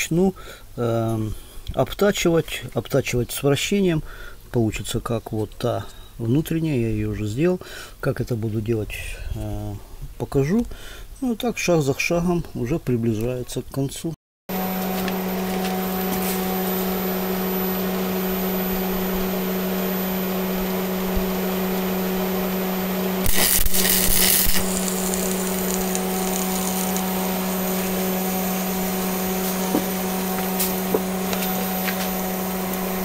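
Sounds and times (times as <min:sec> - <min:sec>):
arc welder humming: 0:14.5 - 0:33.0
welding arc crackling: 0:23.2 - 0:32.8.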